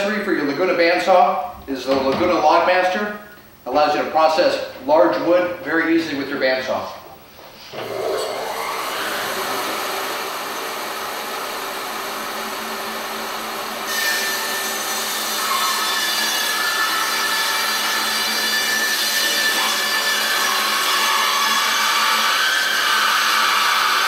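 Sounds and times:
bandsaw cutting through log: 0:07.8 - 0:24.0.

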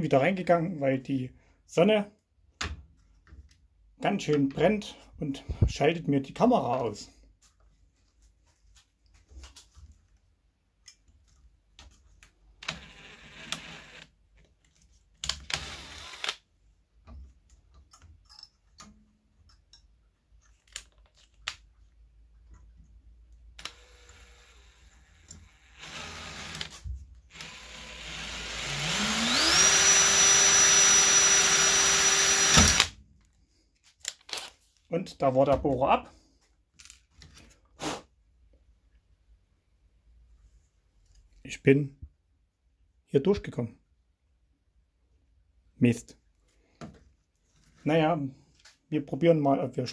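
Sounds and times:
bench drill motor whining: 0:12.6 - 0:14.1, 0:15.4 - 0:16.4, 0:23.6 - 0:32.9
clicks and knocks of tools: 0:17.5 - 0:21.6.

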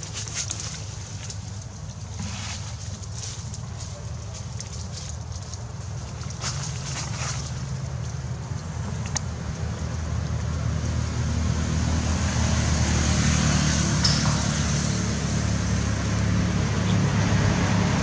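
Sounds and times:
low motor drone: 0:08.8 - 0:18.0.

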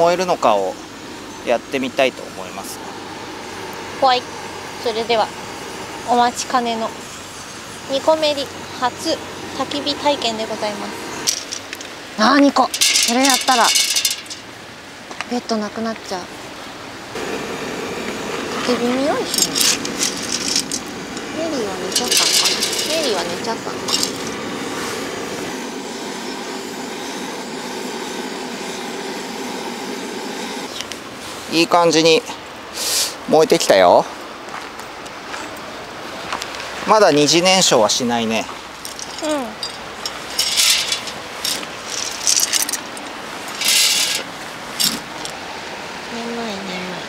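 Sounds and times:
fire rushing noise: 0:16.3 - 0:34.3
gas torch hissing: 0:17.1 - 0:31.7, 0:32.7 - 0:33.3.

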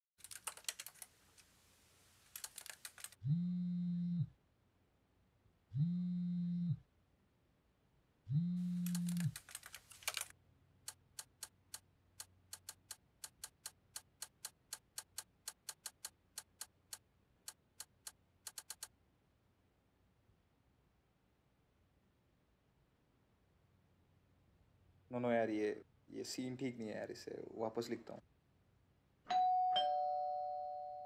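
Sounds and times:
laptop keyboard typing: 0:00.2 - 0:01.1, 0:02.3 - 0:03.2, 0:08.7 - 0:10.3, 0:10.9 - 0:18.9
phone vibrating on hard surface: 0:03.2 - 0:04.3, 0:05.7 - 0:06.8, 0:08.3 - 0:09.3.

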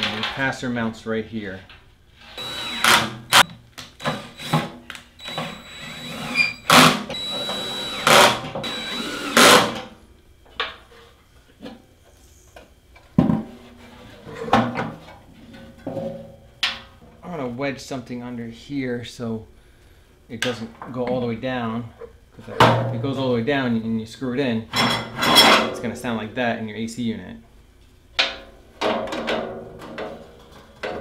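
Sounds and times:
cordless drill motor whine: 0:02.4 - 0:09.8.

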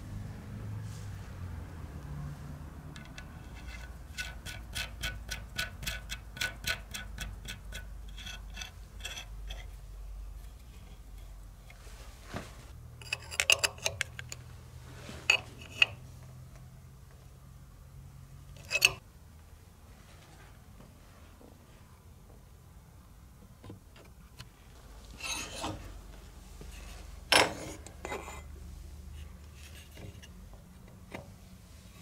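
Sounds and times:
metal nut ticking on thread: 0:03.0 - 0:09.7
spanner clinking on nuts: 0:13.0 - 0:14.4, 0:18.6 - 0:19.0.

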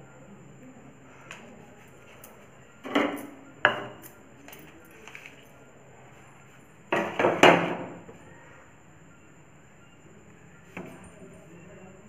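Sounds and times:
crockery knocking and clinking: 0:02.8 - 0:04.2, 0:06.9 - 0:08.0.

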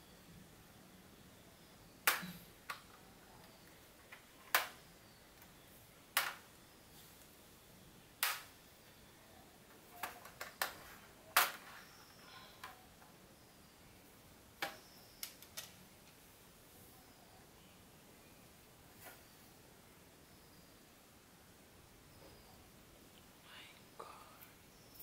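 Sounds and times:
plastic clips popping loose: 0:02.1 - 0:03.0.

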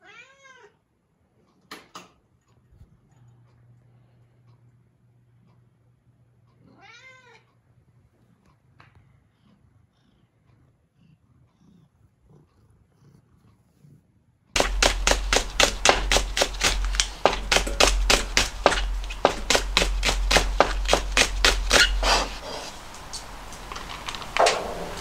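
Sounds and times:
knife chopping on cutting board: 0:14.6 - 0:23.3.

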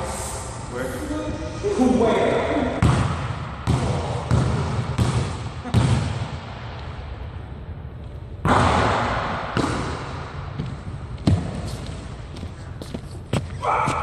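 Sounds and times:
basketball bouncing on hardwood floor: 0:02.8 - 0:06.2
basketball hitting the basket: 0:02.8 - 0:06.4, 0:08.4 - 0:11.6.

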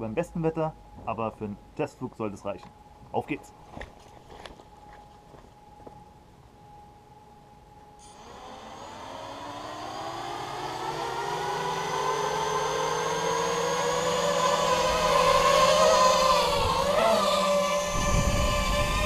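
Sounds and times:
drone motors whining: 0:08.0 - 0:19.0.

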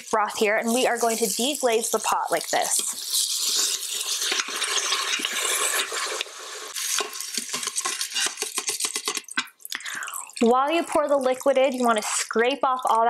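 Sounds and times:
metal tongs scraping pot: 0:00.0 - 0:09.4
broth sizzling in hot pot: 0:00.0 - 0:12.9.

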